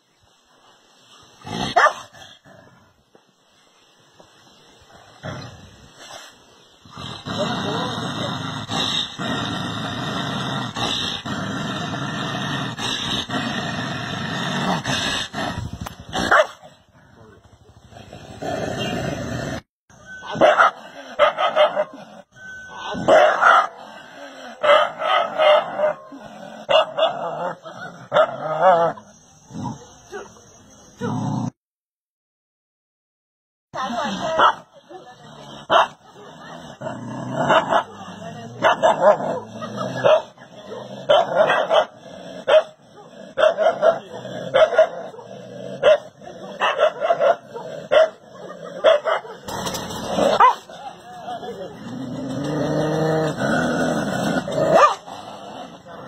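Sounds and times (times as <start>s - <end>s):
dog barking: 1.8s - 2.1s, 16.2s - 16.6s, 20.2s - 22.0s, 22.8s - 23.8s, 24.6s - 26.1s, 26.7s - 27.2s, 34.2s - 34.7s, 35.7s - 36.0s, 38.6s - 50.7s, 54.7s - 55.1s.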